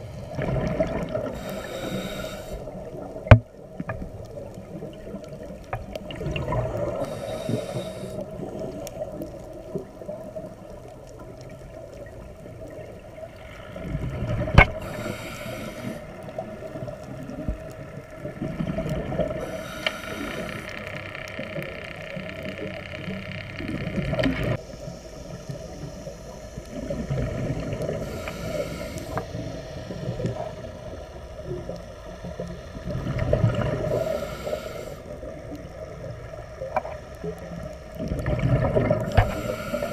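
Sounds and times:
gurgling bubbles: 0:00.0 - 0:39.9
regulator breathing hiss: 0:01.2 - 0:03.0, 0:06.9 - 0:08.5, 0:14.7 - 0:17.1, 0:19.4 - 0:21.1, 0:24.6 - 0:31.5, 0:33.7 - 0:36.3, 0:39.0 - 0:39.9.

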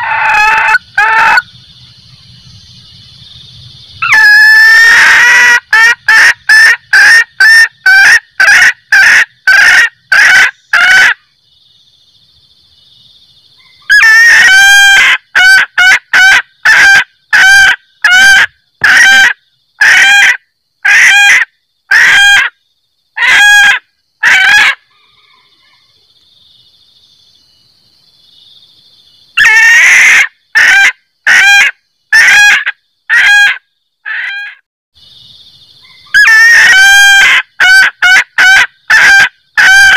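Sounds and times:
hen cackling: 0:00.0 - 0:01.5, 0:04.0 - 0:11.2, 0:13.6 - 0:22.6, 0:23.2 - 0:25.9, 0:29.4 - 0:34.6, 0:35.8 - 0:39.9.

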